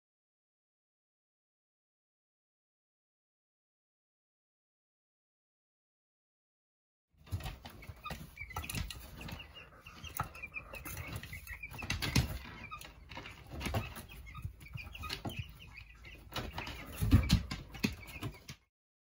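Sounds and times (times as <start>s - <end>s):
chicks peeping: 7.2s - 18.7s.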